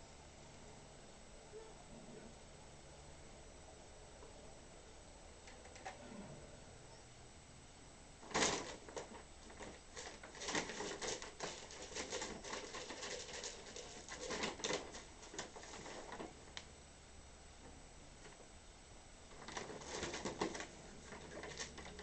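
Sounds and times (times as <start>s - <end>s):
bag crinkling and rustling: 8.2s - 16.6s, 19.3s - 22.0s.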